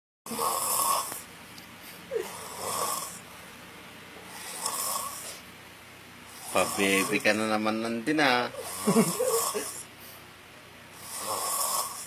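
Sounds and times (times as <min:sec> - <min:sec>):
man snoring: 0:00.3 - 0:01.3, 0:02.1 - 0:03.2, 0:04.3 - 0:05.4, 0:06.3 - 0:07.5, 0:08.5 - 0:09.9, 0:10.9 - 0:12.0.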